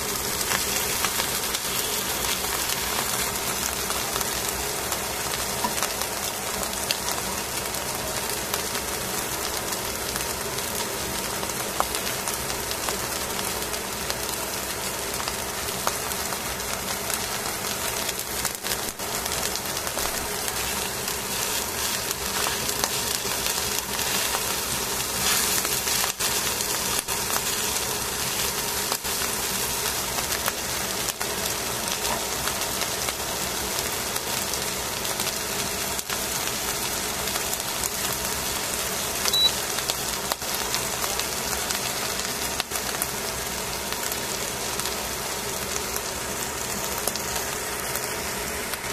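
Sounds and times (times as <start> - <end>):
fish sizzling in a pan: 0.0 - 48.9
crackles and pops: 8.3 - 43.2, 43.8 - 48.9.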